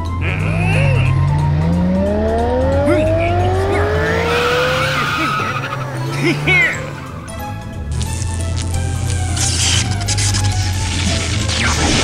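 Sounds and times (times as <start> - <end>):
cartoon car engine accelerating: 0.0 - 7.1
background music: 0.0 - 12.0
tyres squealing: 4.2 - 7.1.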